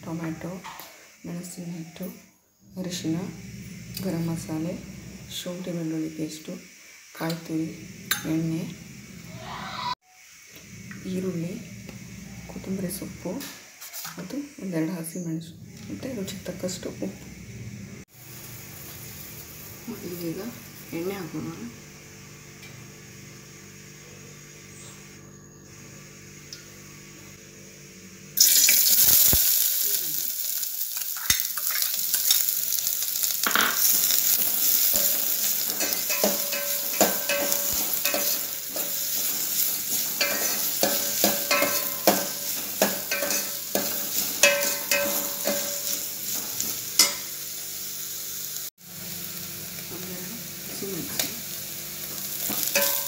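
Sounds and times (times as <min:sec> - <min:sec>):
onions sizzling in hot oil: 0:00.0 - 0:15.2, 0:15.8 - 0:24.0, 0:28.4 - 0:53.0
metal spoon scraping a pot: 0:33.6 - 0:47.2, 0:52.5 - 0:53.0.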